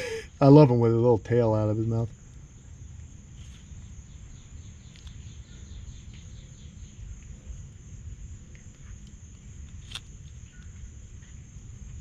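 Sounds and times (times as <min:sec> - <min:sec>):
high insect buzz: 0:01.7 - 0:12.0.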